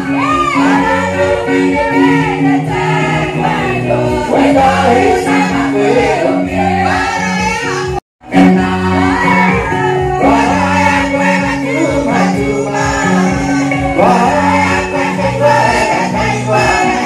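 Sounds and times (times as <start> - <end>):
amplified backing music: 0.0 - 17.0
congregation singing: 0.0 - 17.0.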